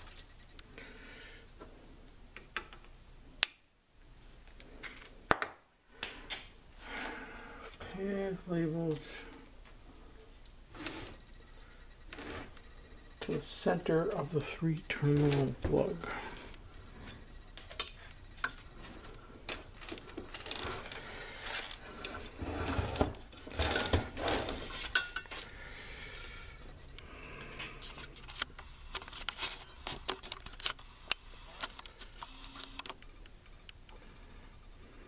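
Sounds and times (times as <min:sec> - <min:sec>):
rustling of wires: 0:06.0 - 0:25.6, 0:26.2 - 0:34.0.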